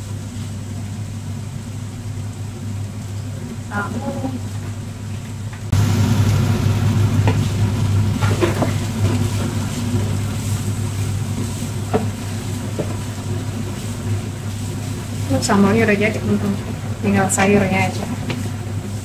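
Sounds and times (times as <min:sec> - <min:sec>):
steady low hum: 0:00.0 - 0:19.0
vegetables sizzling in frying pan: 0:05.7 - 0:19.0
spatula scraping and tapping pan: 0:11.4 - 0:14.0.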